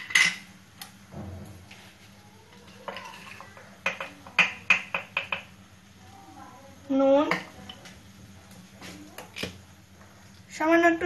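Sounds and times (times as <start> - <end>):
utensils clicking against dishes: 2.6 - 5.5.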